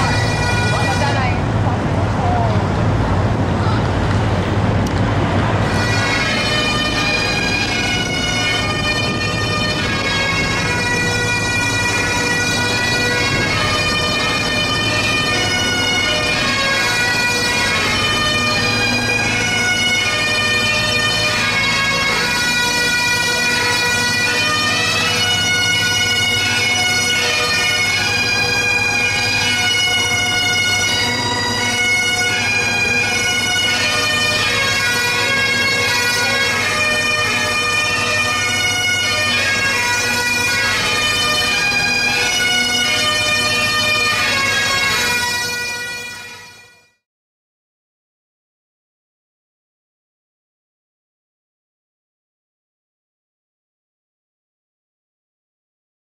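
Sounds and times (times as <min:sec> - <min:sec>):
bagpipe band playing: 0:00.0 - 0:01.6, 0:05.1 - 0:47.0.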